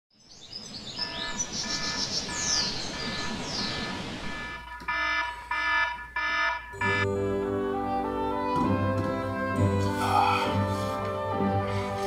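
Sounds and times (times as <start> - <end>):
birds chirping: 0.2 - 5.7
alarm beeping: 1.0 - 7.2.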